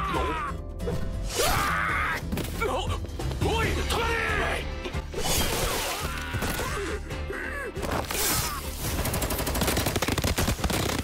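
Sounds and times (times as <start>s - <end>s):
background music: 0.0s - 11.0s
rapid gunfire: 8.8s - 11.0s.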